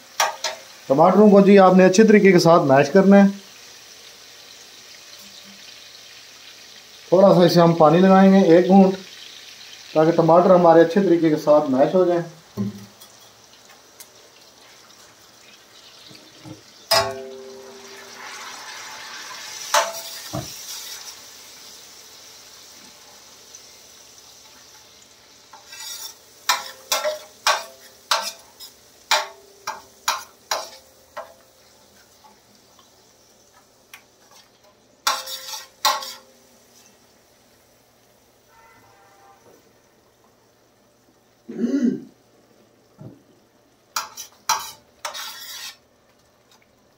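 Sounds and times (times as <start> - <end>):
sauce sizzling: 0.0 - 46.9
metal spatula clinking on pan: 0.2 - 0.6, 16.9 - 17.6, 19.7 - 20.2, 25.5 - 31.4, 35.0 - 36.3, 44.0 - 45.8.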